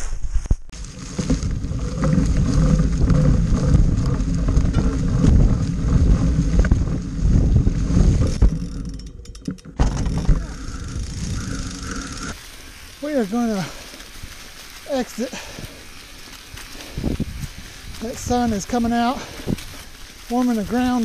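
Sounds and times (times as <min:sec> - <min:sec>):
bike tyres crunching leaves: 0:00.0 - 0:09.0, 0:09.8 - 0:21.0
bike rattling over bumps: 0:00.7 - 0:21.0
wheels knocking on wooden boardwalk: 0:00.8 - 0:12.2.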